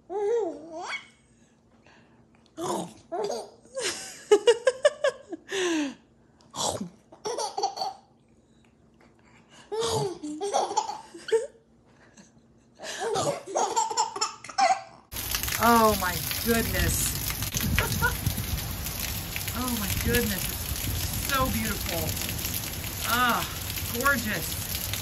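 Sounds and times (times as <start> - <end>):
baby laughing: 3.1 - 3.8, 7.2 - 8.1, 9.7 - 11.6, 12.9 - 15.0.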